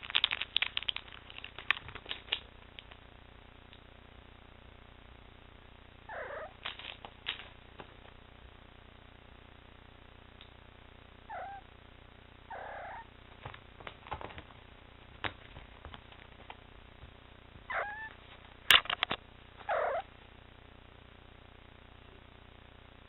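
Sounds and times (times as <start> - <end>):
cat meowing: 6.1 - 6.6, 11.3 - 11.7, 12.5 - 13.1, 17.7 - 18.2, 19.6 - 20.1.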